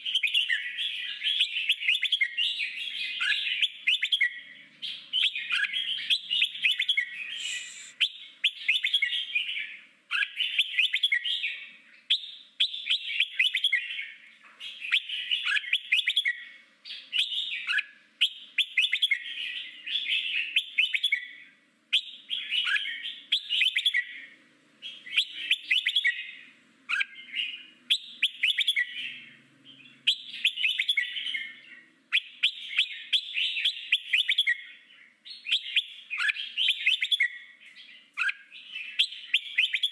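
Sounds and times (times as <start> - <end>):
bird singing warbled phrases: 0.0 - 39.9.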